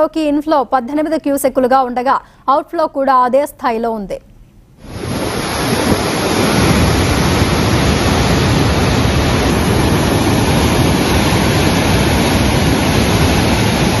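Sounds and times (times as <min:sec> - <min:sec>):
loud rush of water: 0:04.8 - 0:14.0.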